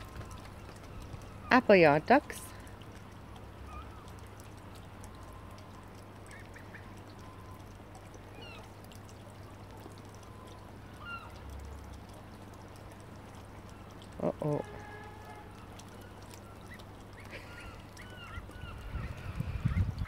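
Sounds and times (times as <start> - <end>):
low background hum: 0.0 - 20.0
ducklings peeping: 6.2 - 7.7, 16.0 - 20.0.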